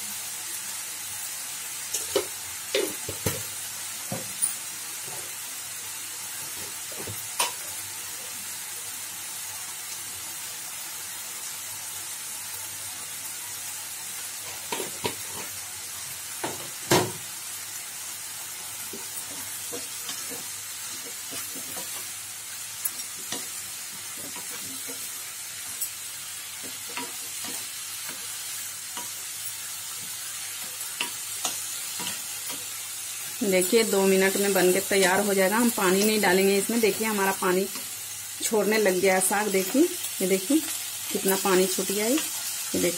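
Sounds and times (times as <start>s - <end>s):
greens sizzling in a pan: 0.0s - 42.9s
spatula scraping and knocking pan: 18.9s - 22.1s.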